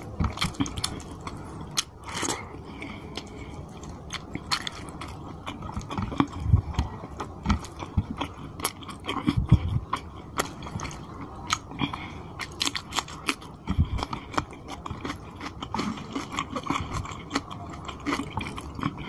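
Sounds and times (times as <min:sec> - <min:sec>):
wet chewing and lip-smacking: 0:00.0 - 0:19.0.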